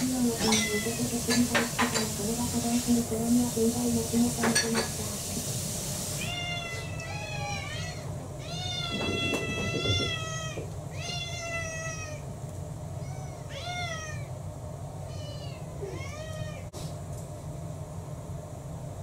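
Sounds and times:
cats meowing: 0.4s - 1.4s, 6.1s - 12.4s, 13.0s - 14.4s, 15.0s - 16.7s.

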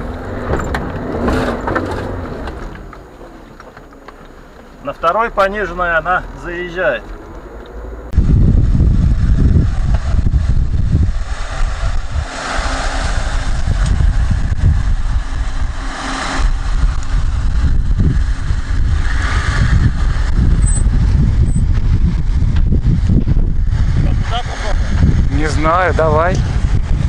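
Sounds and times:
car engine running: 0.0s - 27.0s
uneven low rumble: 7.0s - 27.0s.

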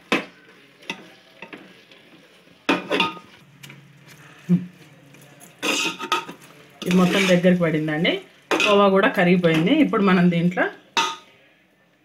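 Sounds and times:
faint sizzle: 0.0s - 12.0s
spoon scraping steel pot: 5.6s - 7.4s.

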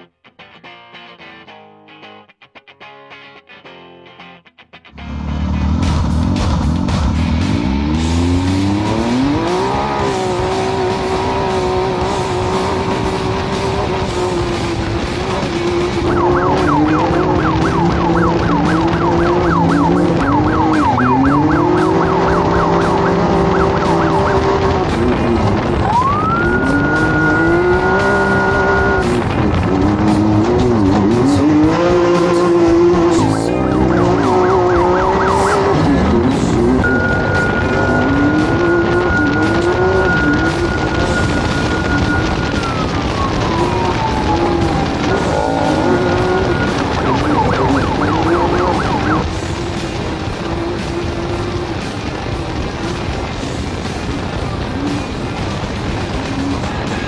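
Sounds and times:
background music: 0.0s - 57.0s
race vehicle engine revving: 5.0s - 57.0s
high gliding tone: 7.7s - 49.3s.

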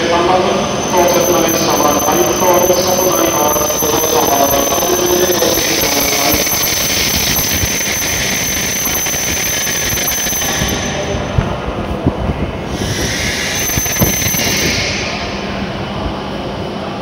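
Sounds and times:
person speaking: 0.0s - 6.9s
train rolling and braking: 0.0s - 17.0s.

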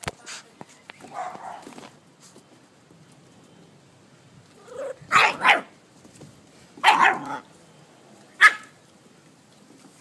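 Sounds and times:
puppy barking: 1.1s - 1.7s, 4.7s - 5.7s, 6.8s - 7.4s, 8.4s - 8.8s.

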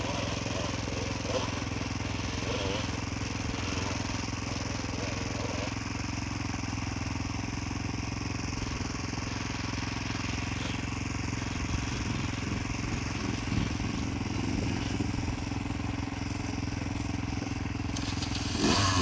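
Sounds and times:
dirt bike engine idling: 0.0s - 19.0s
distant dirt bike revving: 0.0s - 19.0s.

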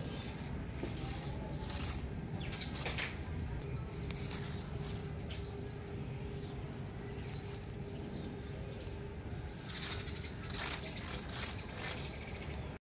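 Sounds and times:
faint steady hum: 0.0s - 12.8s
steady low rumble: 0.0s - 12.8s
high bird chirps: 3.6s - 12.8s.

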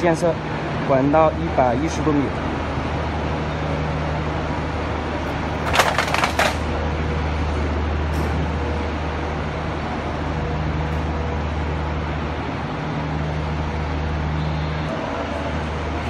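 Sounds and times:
concrete pump engine hum: 0.0s - 16.0s
rattle of sharp clicks: 5.5s - 6.7s.

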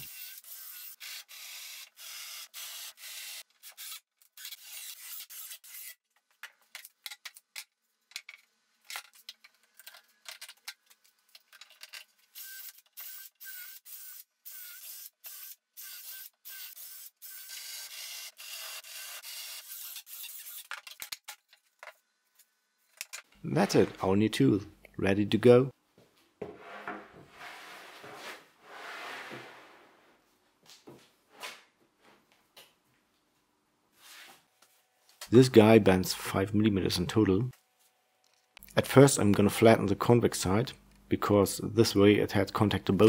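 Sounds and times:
cordless drill cutting wood: 0.0s - 6.0s, 12.4s - 20.7s.

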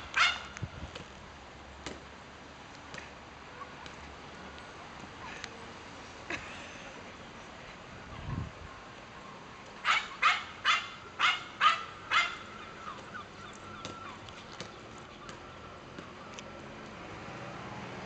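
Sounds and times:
small dog barking: 0.1s - 0.5s, 9.8s - 12.5s.

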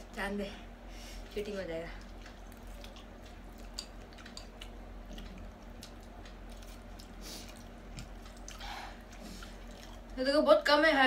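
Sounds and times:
chewing and slurping: 1.9s - 10.2s.

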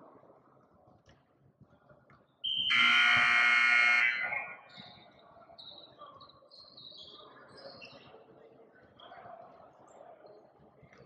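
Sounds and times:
scoreboard buzzer: 2.7s - 4.3s.

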